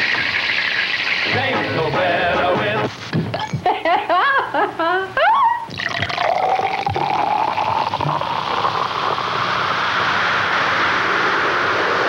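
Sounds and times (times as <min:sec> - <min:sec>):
soda pouring into a glass: 0:00.0 - 0:01.5, 0:05.7 - 0:12.0
fizzing carbonation hiss: 0:00.0 - 0:03.1, 0:05.7 - 0:12.0.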